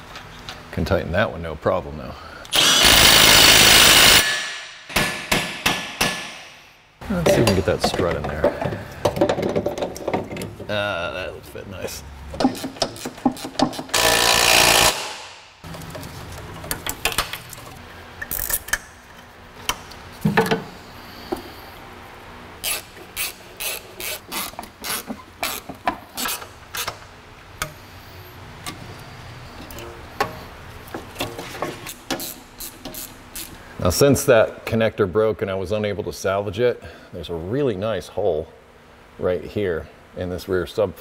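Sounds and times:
loud noisy burst: 2.5s - 4.5s.

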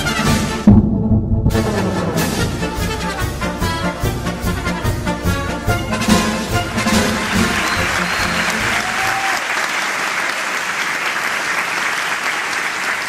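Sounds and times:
brass band tune: 0.0s - 9.1s
audience applauding: 6.0s - 13.0s.

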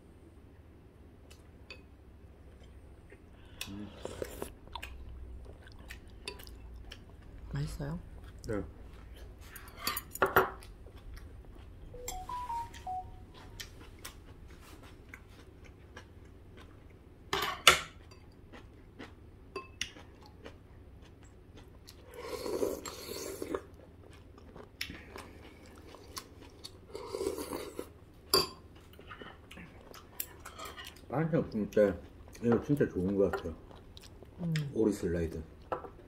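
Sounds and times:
chewing: 2.6s - 9.7s, 10.5s - 11.9s, 13.4s - 17.0s, 18.0s - 28.0s, 28.7s - 34.7s.

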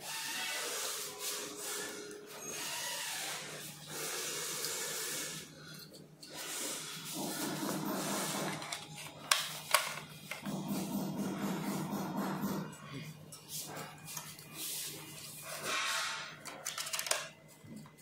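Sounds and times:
plastic parts rustling: 8.5s - 10.4s, 15.6s - 17.5s.

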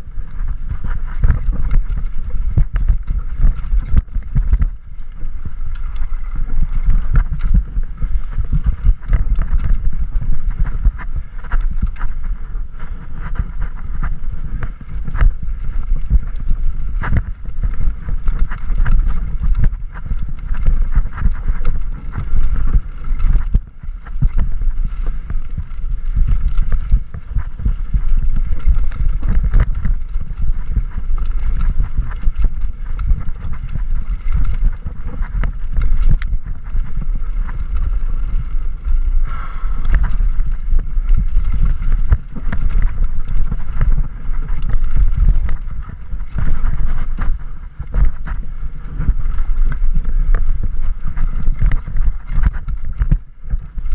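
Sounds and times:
bike rattling over rocks: 0.0s - 53.9s
wind rushing over microphone: 0.0s - 53.9s.

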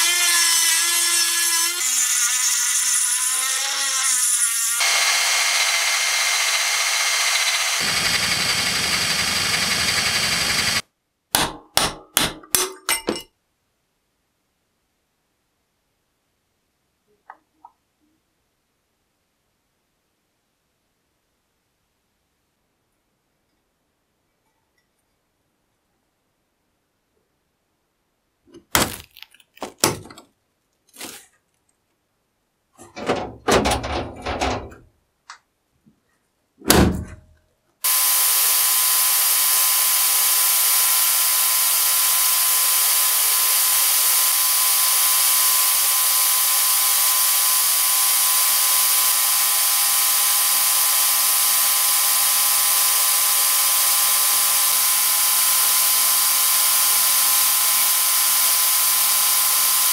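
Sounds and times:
knocks and clunks of iron cover: 32.8s - 34.9s.

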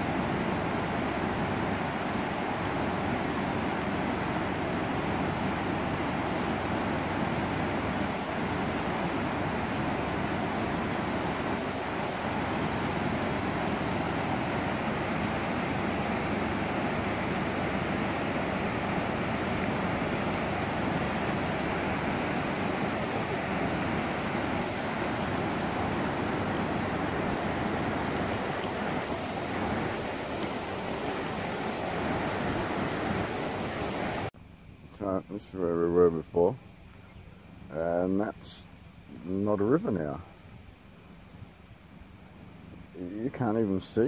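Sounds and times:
floodwater rushing: 0.0s - 34.3s.

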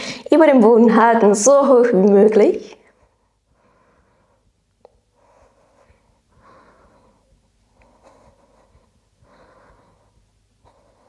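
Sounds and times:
woman breathing: 0.0s - 0.3s, 2.9s - 11.0s.

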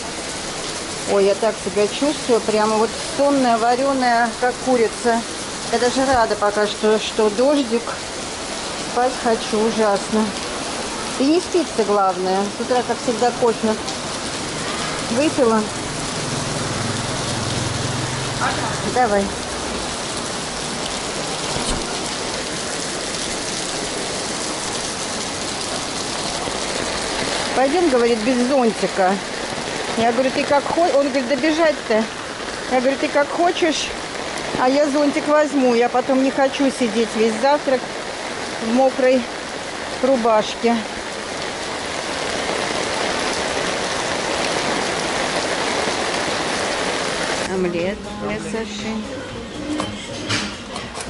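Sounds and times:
rain on wet pavement: 0.0s - 47.9s.

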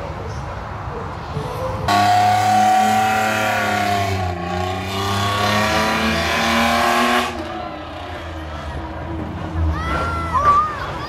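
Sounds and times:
car engine revving high: 1.9s - 8.4s.

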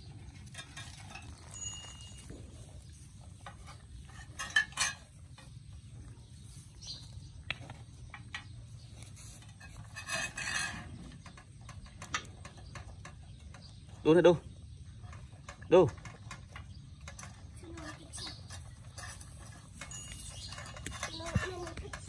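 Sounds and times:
puppies eating from metal tray: 9.6s - 22.0s.

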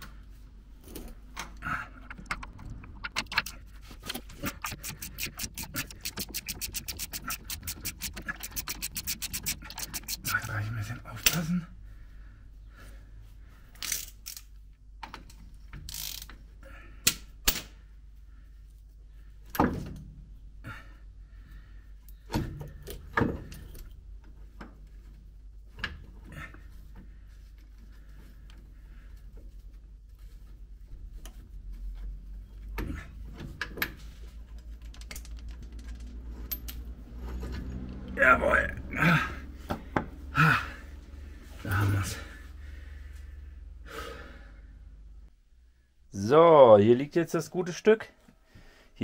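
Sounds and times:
hand tools clicking and scraping: 0.8s - 11.4s, 32.7s - 38.2s.

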